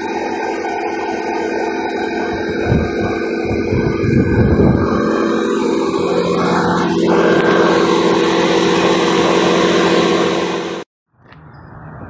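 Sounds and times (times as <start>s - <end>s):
small motor humming: 0.0s - 10.9s.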